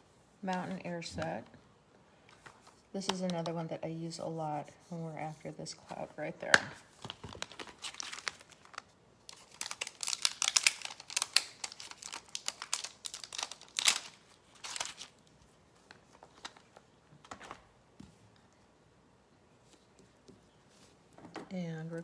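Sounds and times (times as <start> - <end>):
plastic and paper crinkling: 6.8 - 17.7.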